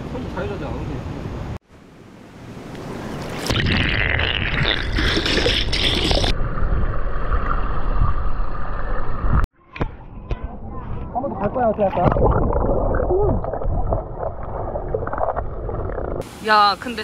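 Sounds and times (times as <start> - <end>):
water splashing and bubbling: 2.8 - 9.5, 11.8 - 16.4.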